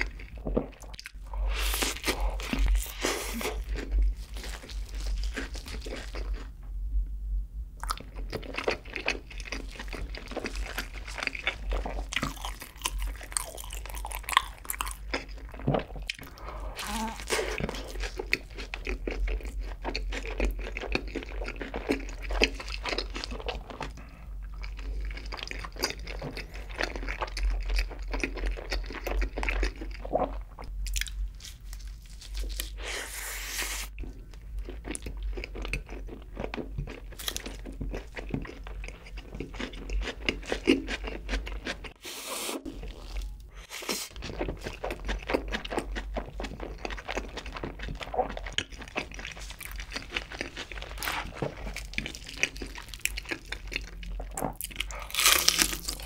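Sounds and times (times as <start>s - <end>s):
crunchy bites: 48.6s - 56.0s.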